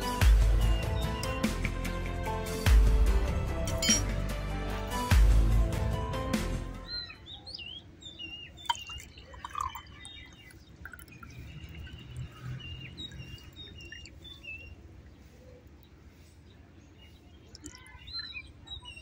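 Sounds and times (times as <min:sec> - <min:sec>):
small birds chirping: 0:00.4 - 0:01.8, 0:06.8 - 0:19.0
liquid trickling into glass: 0:08.6 - 0:14.7, 0:17.4 - 0:18.4.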